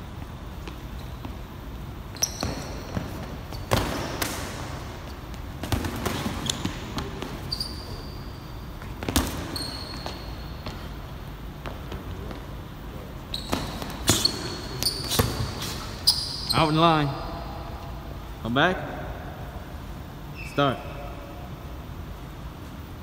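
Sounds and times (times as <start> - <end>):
sneakers squeaking on gym floor: 0.0 - 17.2, 20.2 - 21.4.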